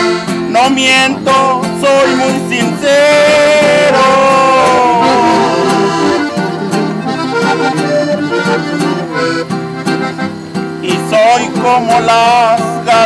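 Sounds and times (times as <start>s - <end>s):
button accordion melody: 0.0s - 13.0s
guitar strumming: 0.0s - 13.0s
man singing: 0.5s - 6.3s, 10.8s - 13.0s.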